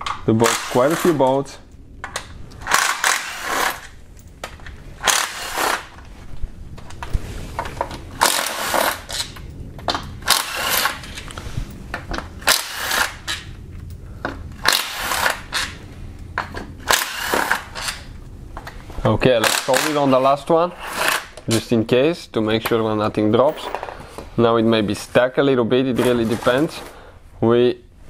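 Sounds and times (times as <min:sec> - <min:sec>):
power ratchet bursts: 0:02.6 - 0:03.9, 0:05.0 - 0:05.9, 0:08.2 - 0:09.3, 0:10.2 - 0:11.1, 0:12.4 - 0:13.4, 0:16.9 - 0:18.0.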